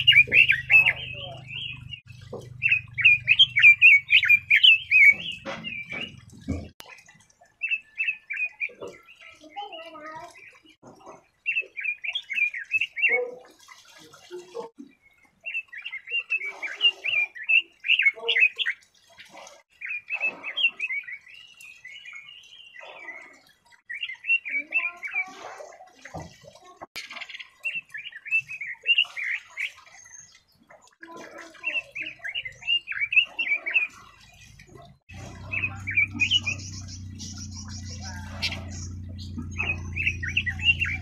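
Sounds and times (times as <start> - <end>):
bird warbling: 0.0 - 6.2, 35.1 - 41.0.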